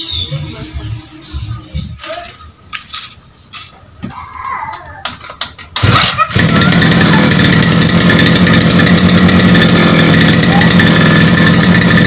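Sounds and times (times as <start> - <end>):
brush-cutter engine running: 5.8 - 12.0.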